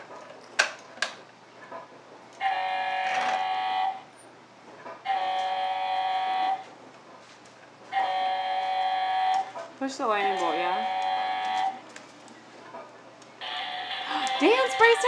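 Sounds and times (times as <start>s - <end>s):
toy electronic tone: 10.2s - 11.8s, 13.4s - 15.0s.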